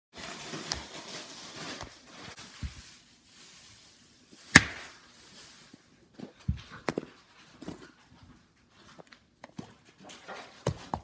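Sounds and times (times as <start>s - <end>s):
loud smack: 4.6s - 4.9s.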